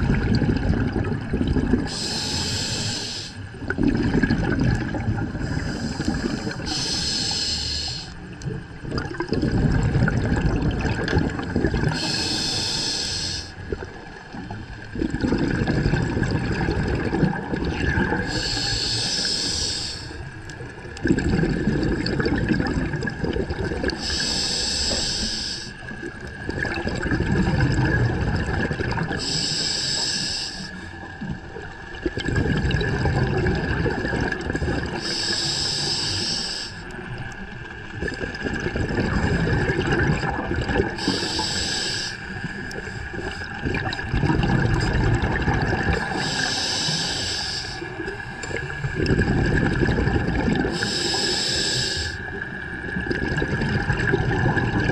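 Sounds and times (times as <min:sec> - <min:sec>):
low underwater bubbling: 0:00.0 - 0:02.9, 0:03.5 - 0:07.2, 0:07.8 - 0:12.8, 0:13.4 - 0:19.4, 0:20.2 - 0:25.0, 0:25.8 - 0:29.4, 0:30.9 - 0:36.0, 0:36.8 - 0:54.9
regulator inhalation hiss: 0:01.9 - 0:03.5, 0:05.5 - 0:08.2, 0:11.9 - 0:13.6, 0:18.2 - 0:20.3, 0:24.0 - 0:25.9, 0:29.2 - 0:30.9, 0:35.0 - 0:36.9, 0:41.0 - 0:43.1, 0:46.0 - 0:48.1, 0:50.7 - 0:52.4.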